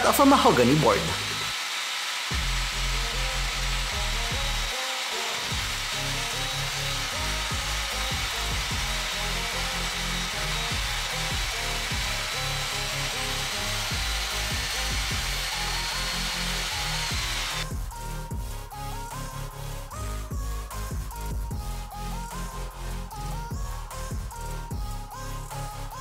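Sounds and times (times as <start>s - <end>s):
background music: 0.0s - 1.6s, 2.3s - 26.0s
table saw cutting wood: 0.0s - 17.8s.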